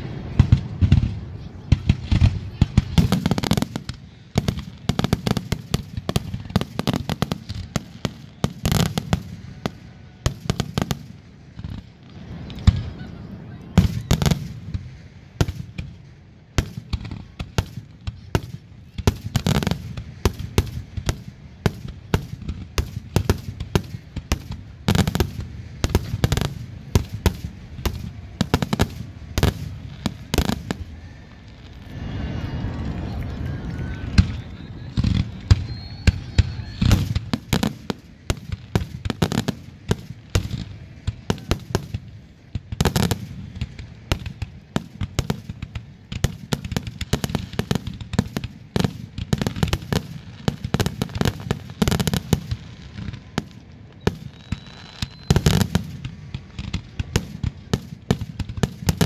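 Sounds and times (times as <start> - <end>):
low rumble: 29.1 - 36.4.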